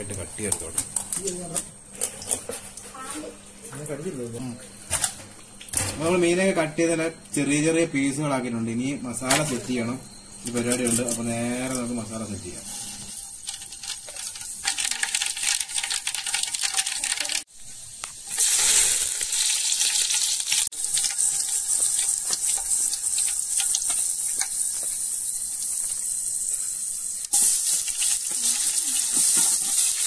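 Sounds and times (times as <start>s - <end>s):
hot oil sizzling in a pot: 10.1s - 30.0s.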